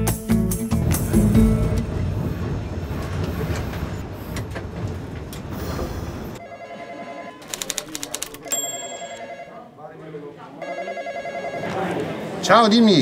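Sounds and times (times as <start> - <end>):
tram wheels rumbling on track: 0.8 - 6.4.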